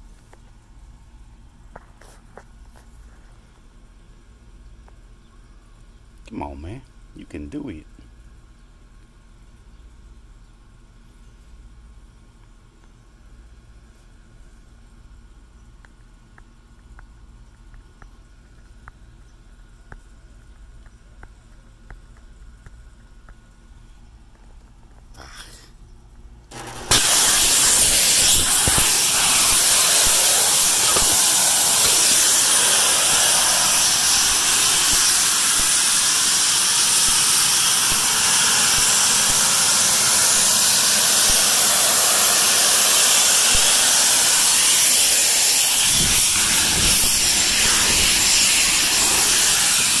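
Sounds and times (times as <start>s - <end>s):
refrigerant gas hissing: 25.1s - 25.8s, 26.5s - 50.0s.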